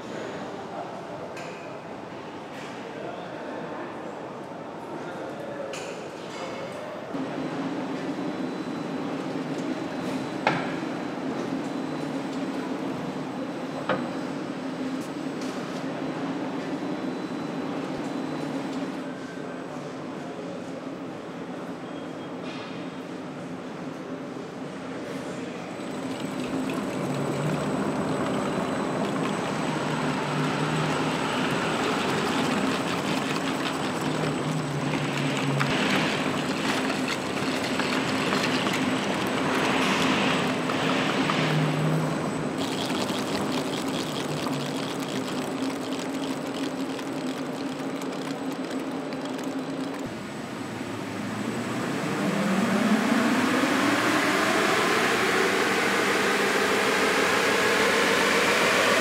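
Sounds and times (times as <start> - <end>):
car wheels on roller test stand: 25.7 - 50.1.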